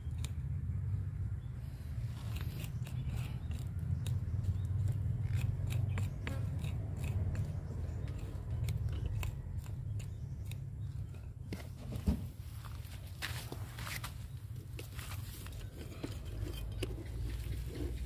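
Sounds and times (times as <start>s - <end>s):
hand tool scratching dry soil: 1.9s - 11.8s, 12.7s - 18.0s.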